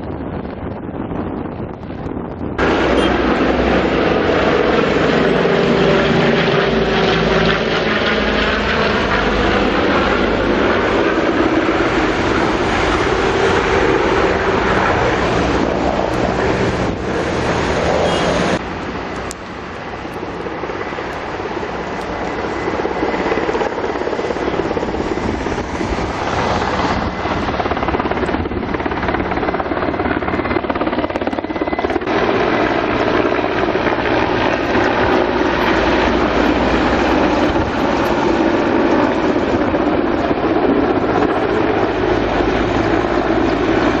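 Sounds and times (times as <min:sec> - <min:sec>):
aircraft engine noise: 0:00.0 - 0:44.0
wind: 0:00.0 - 0:44.0.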